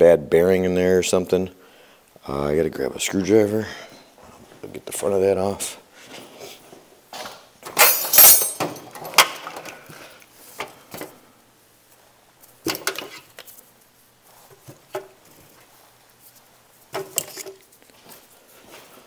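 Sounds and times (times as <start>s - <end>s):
metal hand tools clinking: 7.7s - 9.2s.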